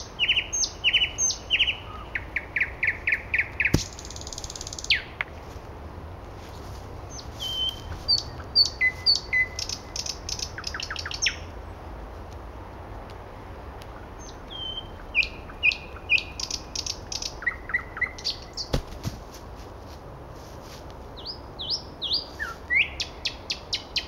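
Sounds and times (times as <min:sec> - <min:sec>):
nightingale singing: 0:00.0 - 0:05.3, 0:07.1 - 0:11.6, 0:13.9 - 0:18.8, 0:21.1 - 0:24.0
sharp knock: 0:03.7 - 0:04.0.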